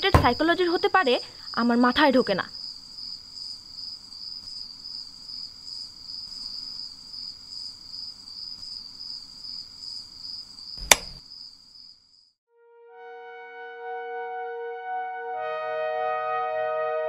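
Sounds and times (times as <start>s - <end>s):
crickets chirping: 0.0s - 12.4s
sharp click: 10.8s - 11.2s.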